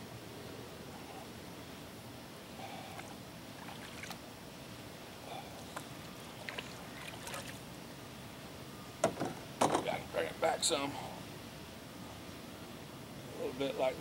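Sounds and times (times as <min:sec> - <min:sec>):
steady background hiss: 0:00.0 - 0:14.0
canoe paddle strokes: 0:06.3 - 0:07.6.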